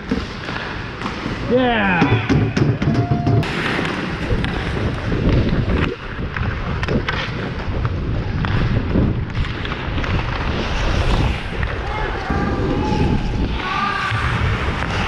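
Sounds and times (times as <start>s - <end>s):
skate blades scraping ice: 0.0s - 2.0s, 3.4s - 15.0s
hockey sticks and puck clicking: 0.0s - 3.0s, 3.8s - 12.2s
wind rushing over camera: 2.4s - 15.0s.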